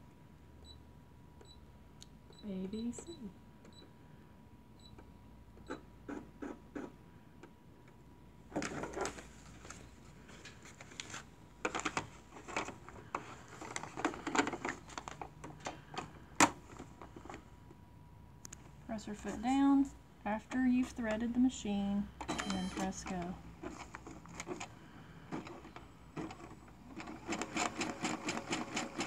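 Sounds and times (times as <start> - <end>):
touchscreen beep: 22.3 - 22.9.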